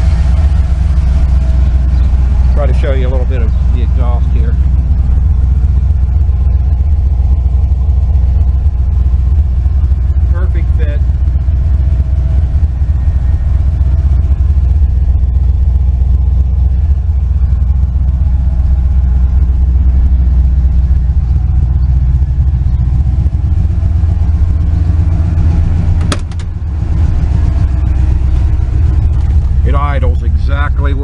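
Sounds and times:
car engine idling: 0.0 - 31.0
deep exhaust rumble: 0.0 - 31.0
sharp click: 26.0 - 26.5.

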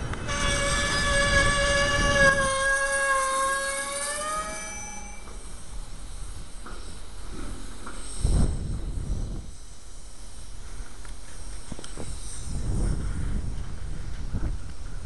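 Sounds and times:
freight train rumbling: 0.0 - 9.6, 12.6 - 15.0.

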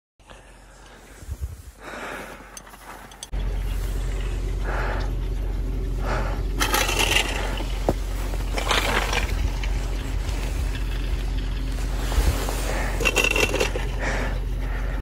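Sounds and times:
crunching scrapes in snow: 7.3 - 14.2.

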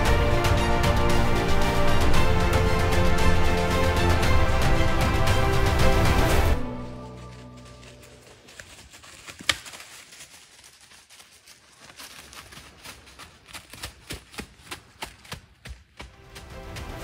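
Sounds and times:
footsteps crunching dry leaves: 6.6 - 15.4.

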